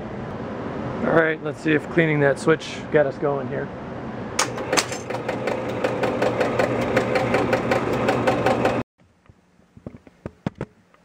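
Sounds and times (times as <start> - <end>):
score motor humming: 4.4 - 8.8.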